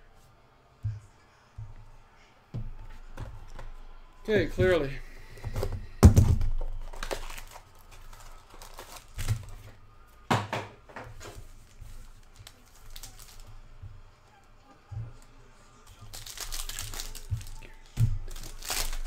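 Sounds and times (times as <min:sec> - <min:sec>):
foil packs crinkling: 0:06.6 - 0:09.7, 0:11.2 - 0:13.6, 0:15.9 - 0:19.0.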